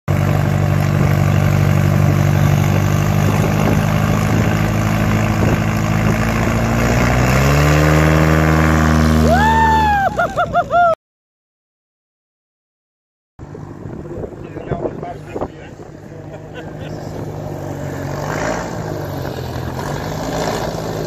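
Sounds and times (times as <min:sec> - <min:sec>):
propeller plane engine: 0:00.1 - 0:11.0, 0:13.4 - 0:21.0
loud high warbling whoop: 0:09.2 - 0:11.0.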